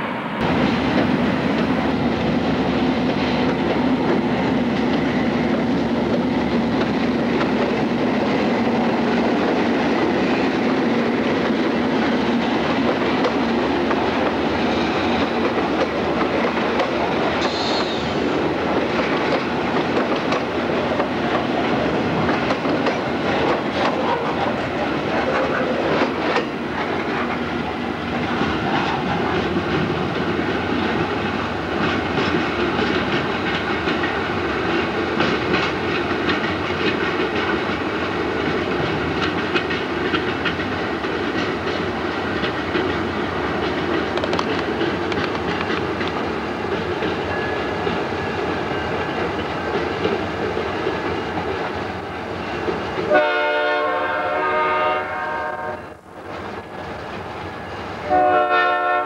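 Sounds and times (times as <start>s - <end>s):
freight train rolling past: 0.0s - 59.0s
wheels clicking over rail joints: 3.0s - 27.4s, 28.2s - 53.2s
locomotive air horn chord: 53.1s - 56.0s, 58.0s - 59.0s.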